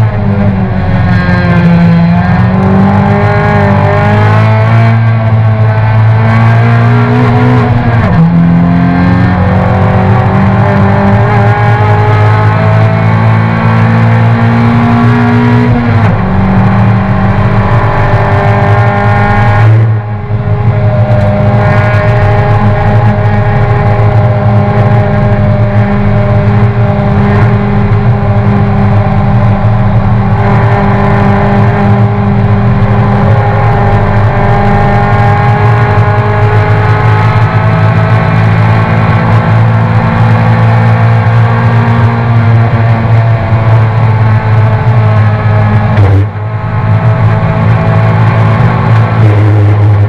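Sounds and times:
race car engine at high revs: 0:00.0 - 0:50.0.

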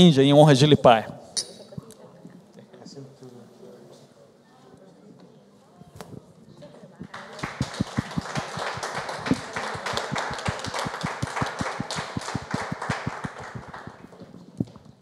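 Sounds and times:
crowd applause: 0:07.1 - 0:14.3
single hand clap: 0:07.2 - 0:14.0.

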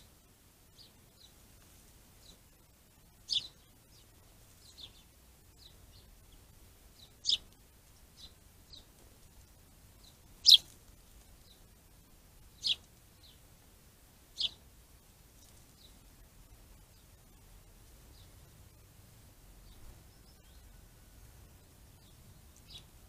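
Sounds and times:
faint bird chirps: 0:02.2 - 0:08.9, 0:10.0 - 0:10.8, 0:12.5 - 0:13.4, 0:14.3 - 0:14.7, 0:19.5 - 0:23.0
songbird sharp calls: 0:03.3 - 0:03.6, 0:07.0 - 0:07.5, 0:10.0 - 0:10.7, 0:12.6 - 0:13.4, 0:14.4 - 0:14.6.

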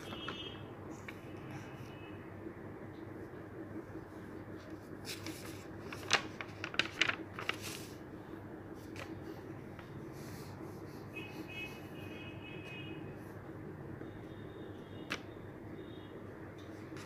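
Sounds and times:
steady low hum: 0:00.0 - 0:17.0
paper cards rustling: 0:04.5 - 0:08.1, 0:08.8 - 0:10.0.

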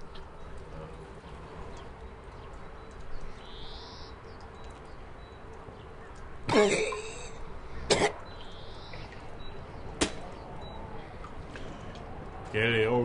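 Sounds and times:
man coughing: 0:06.5 - 0:07.3, 0:07.9 - 0:08.2.

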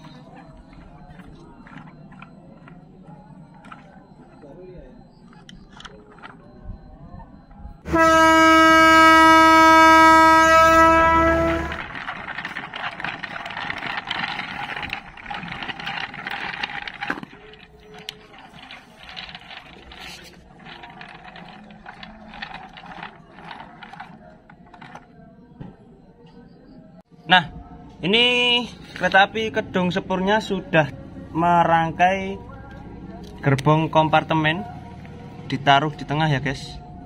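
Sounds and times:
train horn: 0:07.9 - 0:12.0
rattling clattering noise: 0:09.4 - 0:26.4.

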